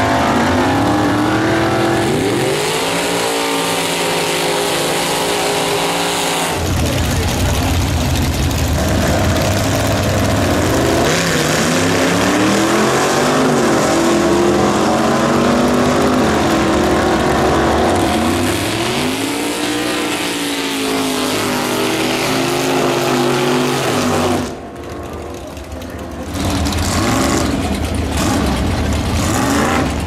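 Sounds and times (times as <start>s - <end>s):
drag car engines revving: 0.0s - 30.0s
low engine rumble: 6.5s - 20.1s, 21.3s - 30.0s.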